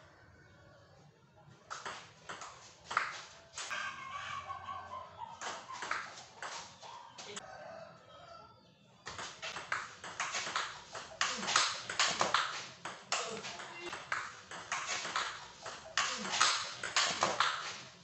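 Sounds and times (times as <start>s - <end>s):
table tennis ball hits: 1.7s - 3.7s, 5.4s - 6.7s, 9.1s - 18.0s.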